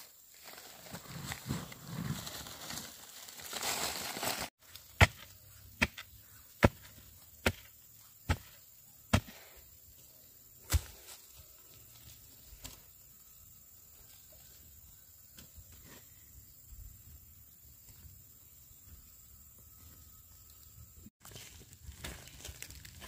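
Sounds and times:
chopping strikes on wood: 4.9s - 7.7s, 8.3s - 9.4s, 10.7s - 10.9s.

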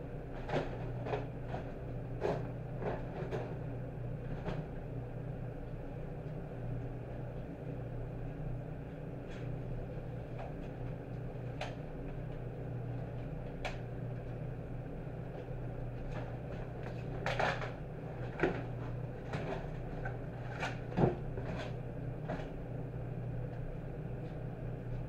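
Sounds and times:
low machine hum: 0.0s - 25.0s.

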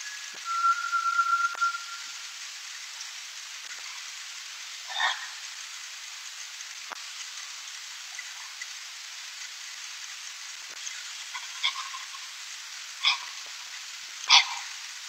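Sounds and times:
steady hiss: 0.0s - 15.0s
short sharp animal calls: 11.3s - 12.2s, 13.0s - 13.4s.

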